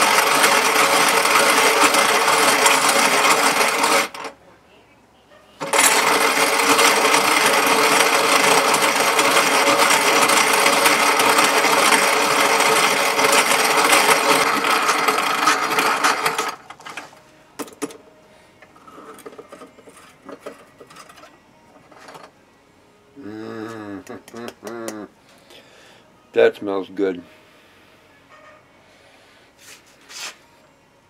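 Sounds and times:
hand-crank coffee grinder grinding: 0:00.0 - 0:04.3, 0:05.6 - 0:17.9, 0:18.6 - 0:22.3.

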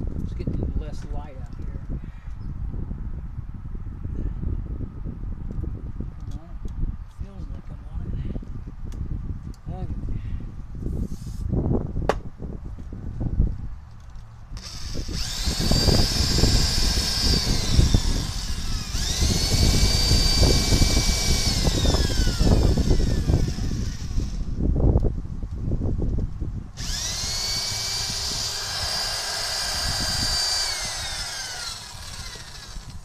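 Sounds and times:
drill bit grinding: 0:14.6 - 0:24.5, 0:26.8 - 0:33.0
electric drill whining: 0:14.6 - 0:24.6, 0:26.8 - 0:33.0.

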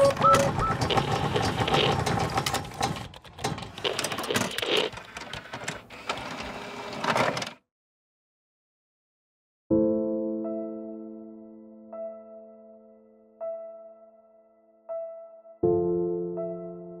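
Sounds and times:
rapid mechanical clicking: 0:00.0 - 0:06.2.

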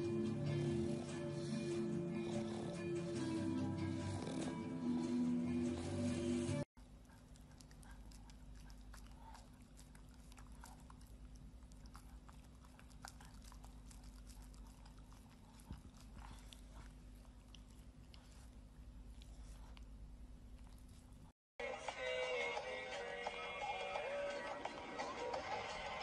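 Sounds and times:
music: 0:00.0 - 0:06.6, 0:21.6 - 0:26.0
dog licking and chewing: 0:06.8 - 0:21.3.

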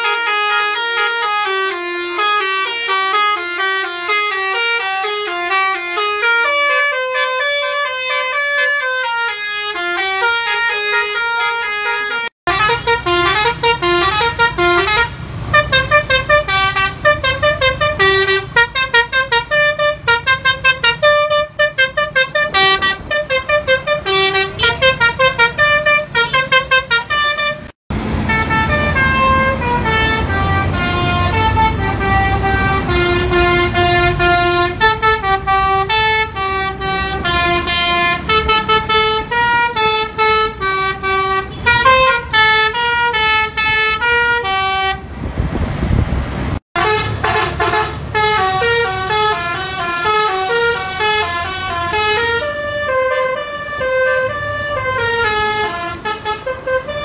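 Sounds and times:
multi-tone bus horn melody: 0:00.0 - 0:45.3, 0:46.6 - 0:57.0
engine rumble: 0:12.5 - 0:57.0.

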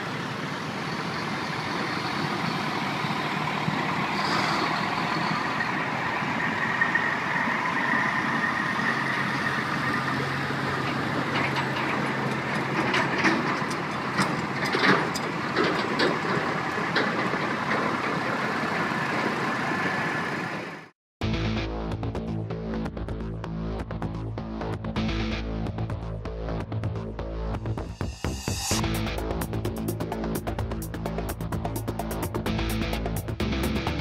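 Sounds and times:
diesel trucks driving past: 0:00.0 - 0:20.9
sharp knocks and rattles: 0:10.7 - 0:18.4.

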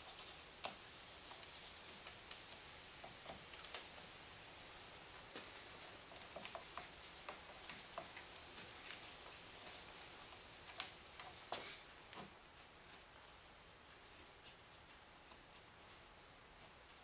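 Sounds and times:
brush bristles scrubbing metal: 0:00.0 - 0:14.6.

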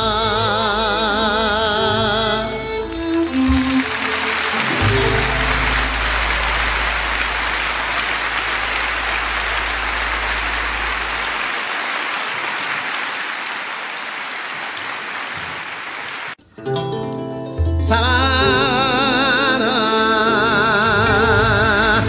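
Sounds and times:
deep held note: 0:01.9 - 0:11.5
audience applauding: 0:02.2 - 0:16.4.

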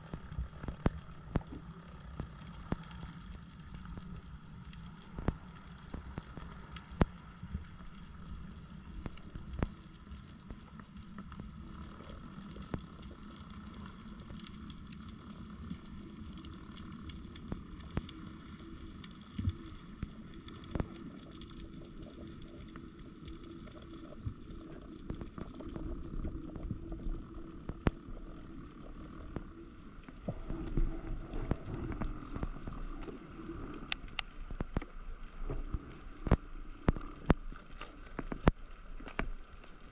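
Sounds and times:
clicks and crackles: 0:00.0 - 0:39.9
underwater low rumble: 0:00.0 - 0:39.9
rapid high beeps: 0:08.6 - 0:11.2, 0:22.5 - 0:25.2.

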